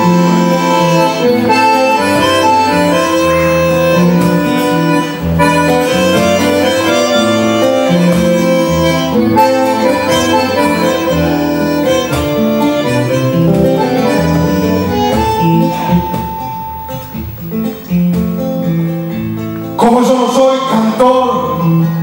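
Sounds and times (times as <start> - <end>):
violin: 0.0 - 17.5
bandoneon: 0.0 - 19.7.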